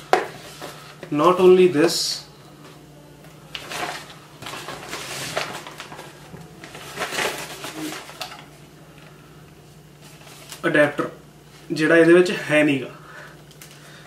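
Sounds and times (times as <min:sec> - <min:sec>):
shopping bag rustling: 0:03.6 - 0:08.4.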